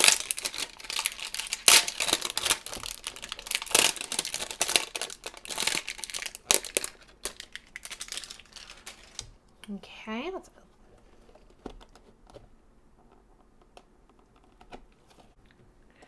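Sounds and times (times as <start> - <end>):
plastic wrapping crinkling: 0.0 - 9.4.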